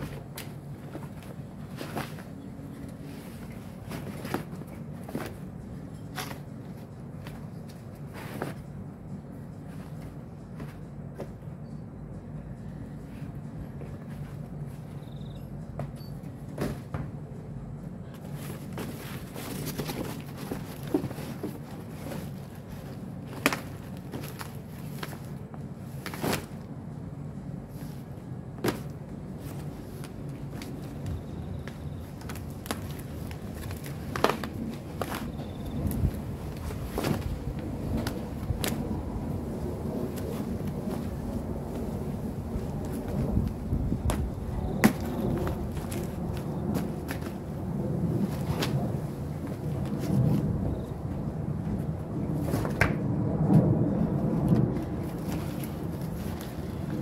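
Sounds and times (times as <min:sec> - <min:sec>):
cardboard boxes rustling: 0:00.0 - 0:08.9, 0:18.2 - 0:26.6, 0:27.7 - 0:38.9, 0:40.0 - 0:47.6, 0:54.5 - 0:57.0
steady low hum: 0:00.0 - 0:57.0.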